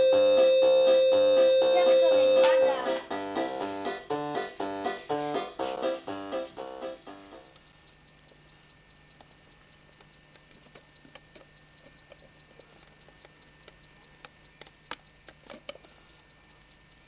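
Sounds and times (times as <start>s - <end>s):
clock-like ticking: 0.0s - 17.0s
low steady hum: 0.0s - 17.0s.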